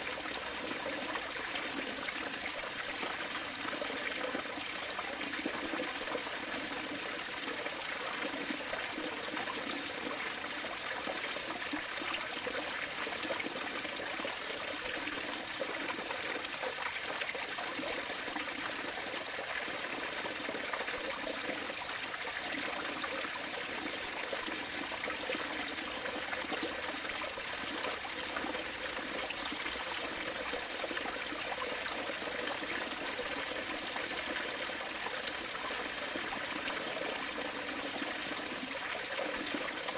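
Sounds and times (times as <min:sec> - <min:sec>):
running water: 0:00.0 - 0:39.9.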